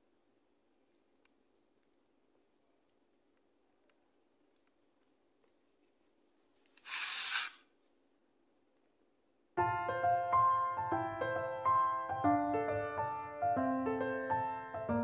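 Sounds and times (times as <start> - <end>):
piano music: 9.6 - 15.0.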